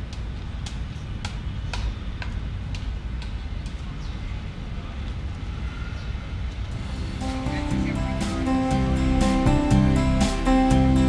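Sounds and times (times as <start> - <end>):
low urban rumble: 0.0 - 11.0
acoustic guitar music: 6.7 - 11.0.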